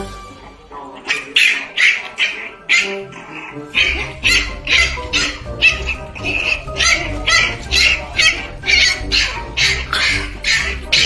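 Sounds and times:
puppy yelping: 1.0 - 11.0
background music with bass: 3.6 - 11.0.

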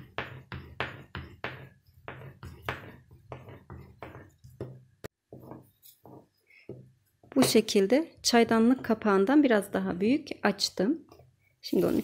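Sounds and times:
rolling pin rubbing on dough: 0.0 - 7.3.

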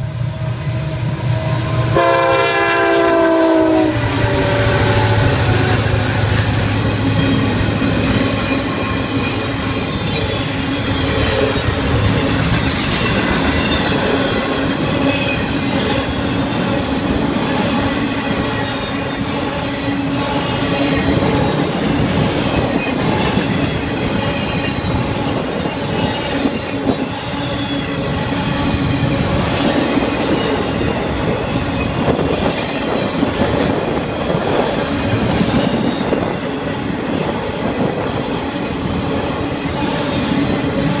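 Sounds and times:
freight train wheels rumbling: 0.0 - 41.0.

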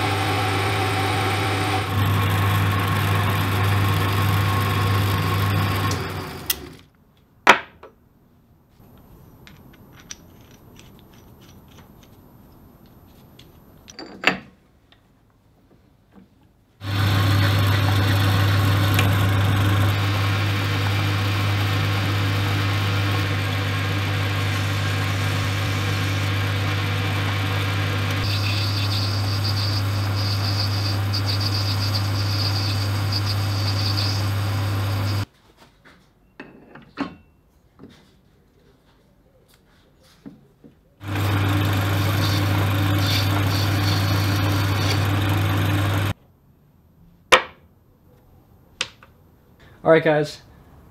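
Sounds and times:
drill high whine: 0.0 - 6.6, 16.8 - 35.3, 41.0 - 46.1
lathe motor hum: 0.0 - 6.8, 16.8 - 35.3, 41.0 - 46.1
small metal parts clinking: 9.5 - 12.2.

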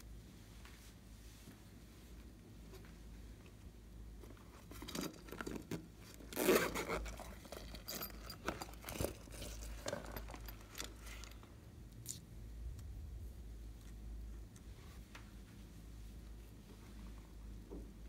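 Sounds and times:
zipper pulled open: 6.2 - 11.1.

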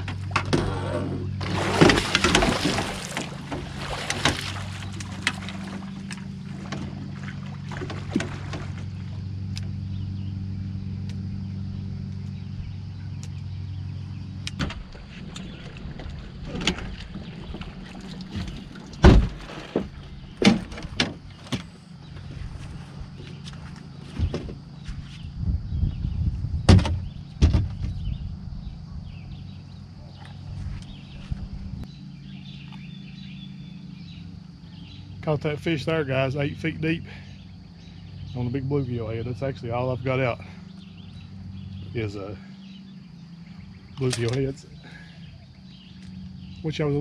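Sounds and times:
steady low hum: 0.0 - 47.0
fish splashing: 1.3 - 9.2
landing net thump: 1.4 - 5.8, 18.4 - 21.7, 26.7 - 28.1
knocks against boat: 1.4 - 8.9, 14.5 - 21.7, 26.7 - 28.1.

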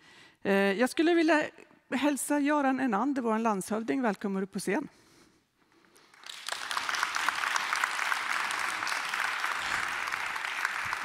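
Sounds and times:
audience applauding: 6.0 - 11.0.

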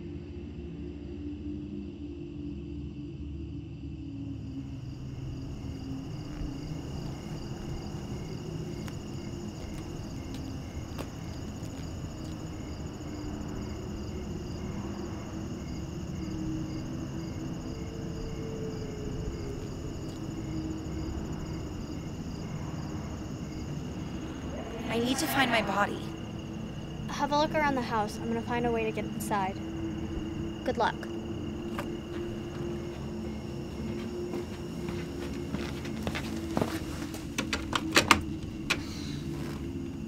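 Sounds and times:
crickets chirping: 0.0 - 40.0.

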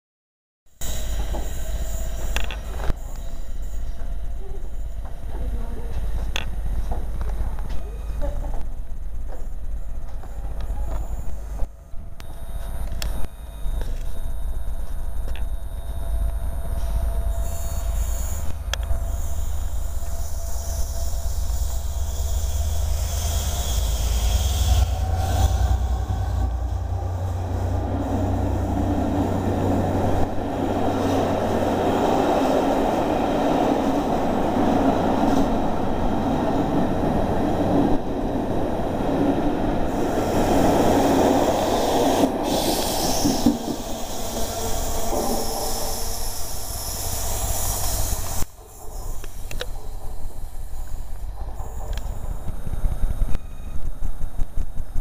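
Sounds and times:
diesel locomotive passing: 18.8 - 55.0
train coaches rumbling past: 19.0 - 48.2.

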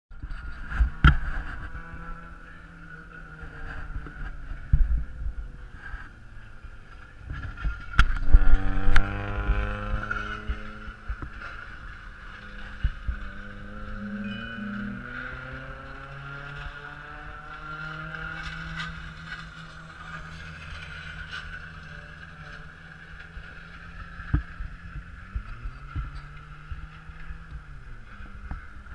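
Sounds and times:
race car engine: 0.2 - 28.9
wind thumps on microphone: 7.3 - 11.3.

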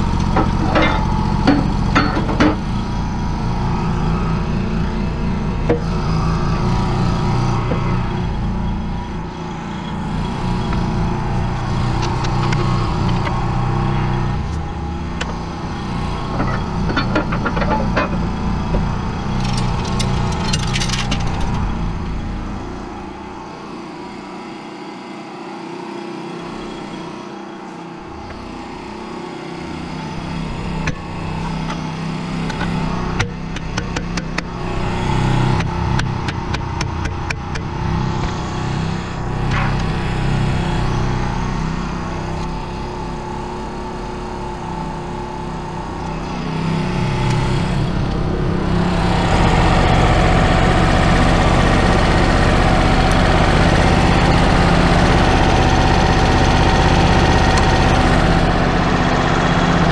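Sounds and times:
small engine running: 0.0 - 59.9
sharp clicks and knocks: 16.3 - 21.6, 32.4 - 34.5.

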